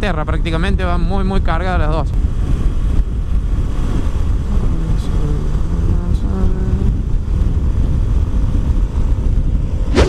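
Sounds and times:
wind buffeting microphone: 0:00.0 - 0:10.0.

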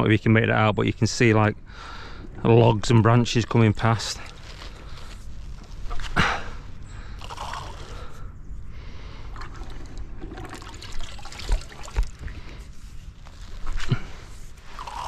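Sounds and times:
water trickling off spoon: 0:09.4 - 0:12.1.

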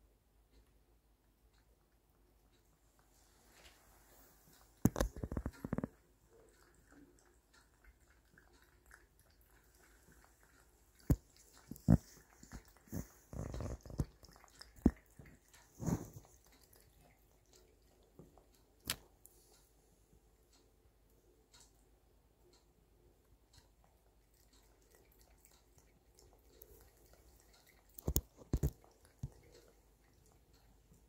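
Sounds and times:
cat lapping water: 0:04.5 - 0:19.2, 0:23.5 - 0:31.0.

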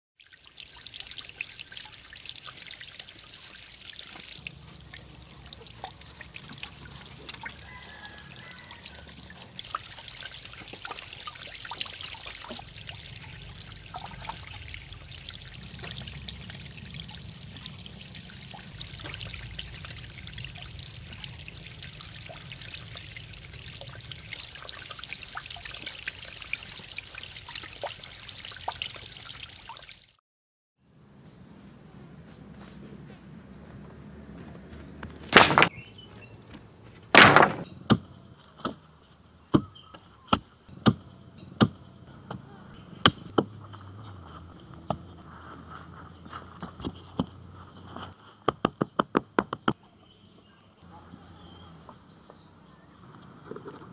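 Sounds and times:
water trickling over rocks: 0:00.2 - 0:30.1, 0:42.1 - 0:49.0.

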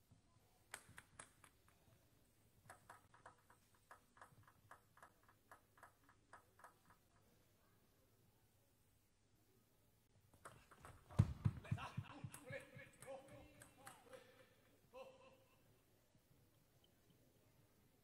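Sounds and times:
table tennis ball bouncing: 0:02.6 - 0:07.3, 0:10.3 - 0:14.8.

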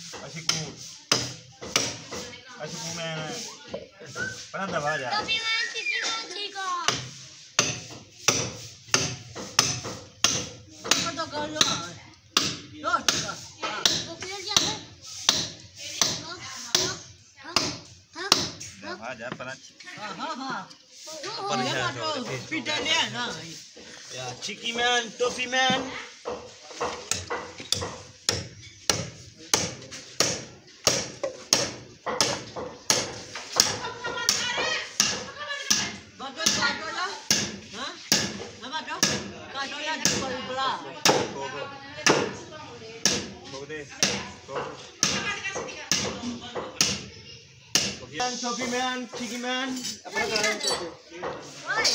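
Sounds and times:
hand hammer striking: 0:00.5 - 0:02.2, 0:06.9 - 0:18.6, 0:25.6 - 0:38.4.

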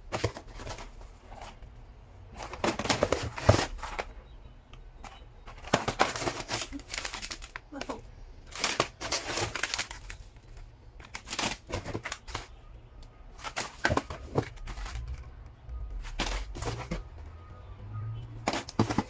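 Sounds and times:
plastic snack bag crinkling: 0:05.5 - 0:12.6, 0:13.4 - 0:15.3.

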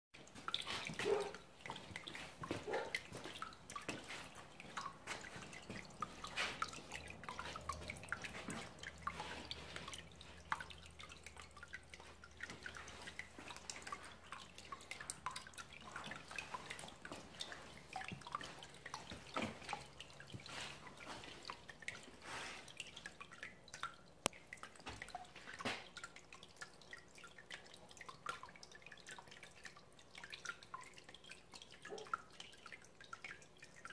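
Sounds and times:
fountain water trickling onto pebbles: 0:00.2 - 0:33.9.

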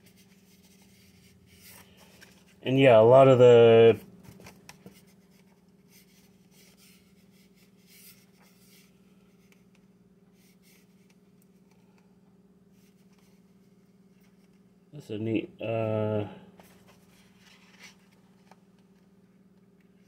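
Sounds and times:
book pages rustling: 0:00.0 - 0:02.6, 0:16.6 - 0:19.1
steady low hum: 0:00.0 - 0:20.0.

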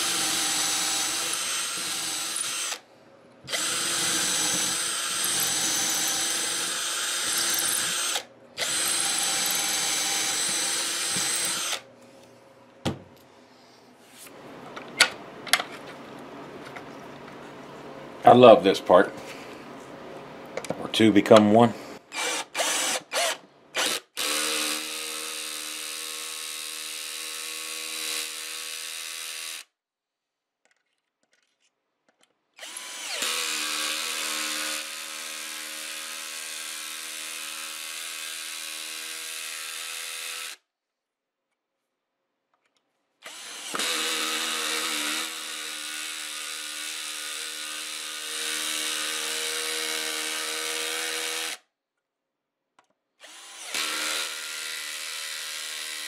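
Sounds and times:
electric drill running: 0:00.0 - 0:02.9, 0:03.5 - 0:11.9, 0:22.1 - 0:29.7, 0:32.6 - 0:40.6, 0:43.2 - 0:51.6, 0:53.2 - 0:56.0.

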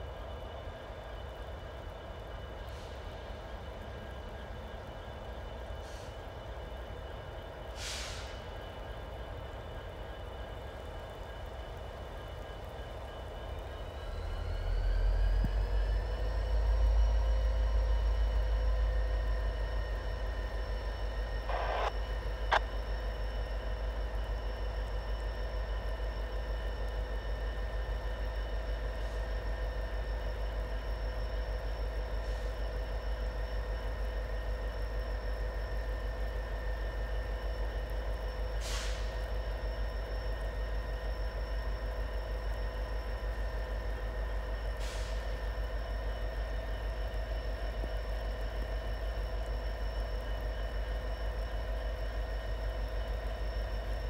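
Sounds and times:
train low rumble: 0:00.0 - 0:54.0
air brake hiss: 0:05.8 - 0:06.2, 0:07.7 - 0:08.5, 0:38.6 - 0:39.2, 0:44.8 - 0:45.4
whining tones: 0:12.7 - 0:54.0.

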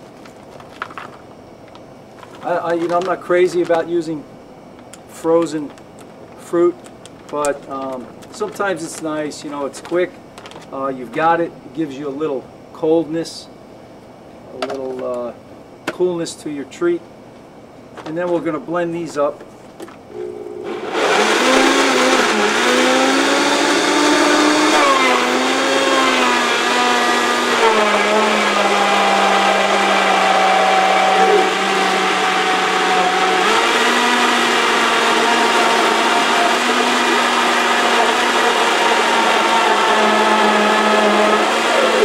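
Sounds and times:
countertop blender running: 0:20.2 - 0:42.0.

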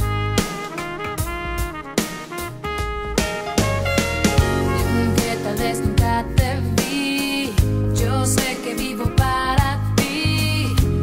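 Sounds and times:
drum hits: 0:00.0 - 0:06.4
bass line: 0:00.0 - 0:06.9, 0:07.6 - 0:08.5, 0:09.1 - 0:11.0.

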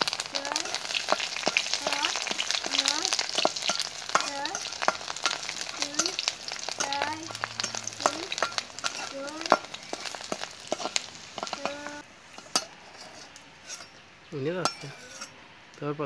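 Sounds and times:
potatoes sizzling in oil: 0:00.0 - 0:13.3
metal spatula scraping wok: 0:00.0 - 0:14.0, 0:14.6 - 0:15.4.

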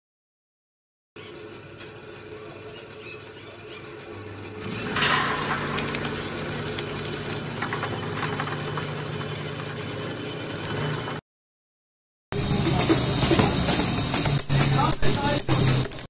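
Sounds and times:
vegetable slicer motor hum: 0:01.2 - 0:11.2, 0:12.4 - 0:16.0
blade chopping vegetable: 0:12.4 - 0:16.0.

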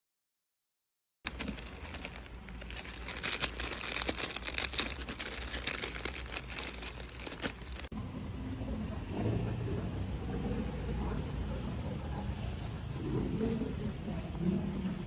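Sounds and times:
plastic packets crinkling: 0:01.3 - 0:07.9.

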